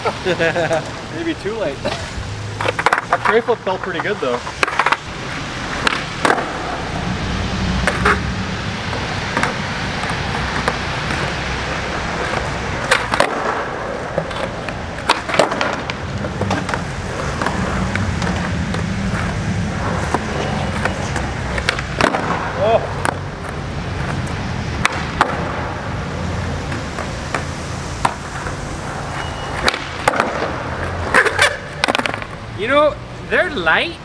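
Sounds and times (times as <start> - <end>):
skateboard wheels rolling on concrete: 0.0 - 34.0
skateboard popping and landing: 2.6 - 5.1, 5.7 - 6.8, 7.8 - 8.3, 8.9 - 25.8, 26.6 - 32.5.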